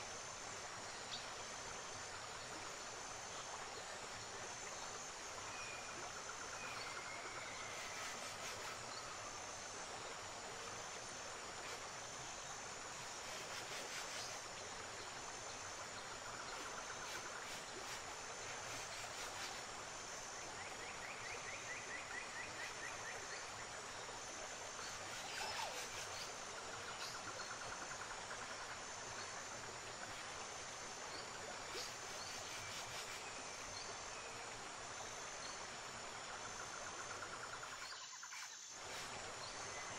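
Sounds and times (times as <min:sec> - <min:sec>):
high insect buzz: 0:00.0 - 0:39.9.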